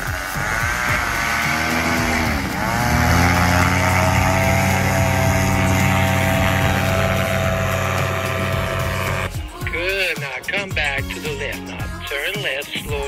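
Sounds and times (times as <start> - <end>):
paramotor engine and propeller: 0.0 - 9.3.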